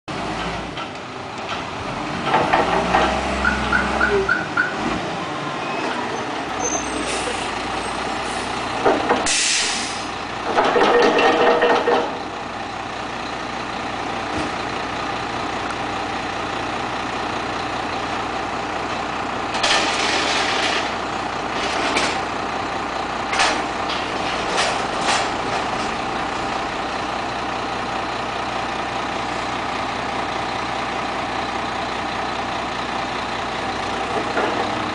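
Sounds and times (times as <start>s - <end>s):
air brakes hissing: 6.6s - 7.6s, 9.2s - 10.1s
garbage truck diesel engine idling: 11.8s - 20.1s, 20.8s - 34.9s.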